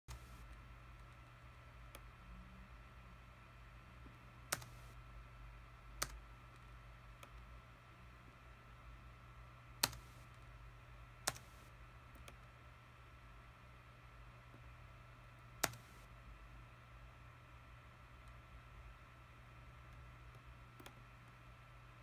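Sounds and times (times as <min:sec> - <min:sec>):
faint steady hum: 0:00.1 - 0:22.0
computer mouse clicks: 0:04.0 - 0:05.0, 0:06.0 - 0:07.5, 0:09.8 - 0:10.4, 0:11.2 - 0:12.5, 0:15.6 - 0:16.1, 0:19.8 - 0:21.4.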